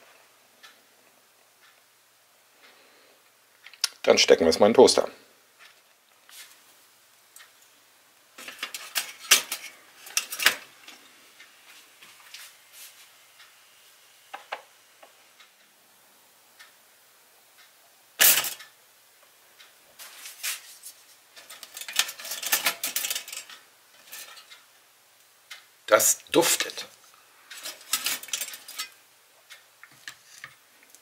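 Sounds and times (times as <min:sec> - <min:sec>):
toaster clicks and clatter: 0:08.4 - 0:11.0, 0:18.2 - 0:18.7, 0:21.4 - 0:24.6, 0:27.5 - 0:29.0
wooden tongs knocking and scraping: 0:08.4 - 0:11.0, 0:21.4 - 0:24.5, 0:27.5 - 0:29.0
toaster popping up: 0:18.2 - 0:18.6, 0:21.4 - 0:23.5, 0:27.6 - 0:29.0.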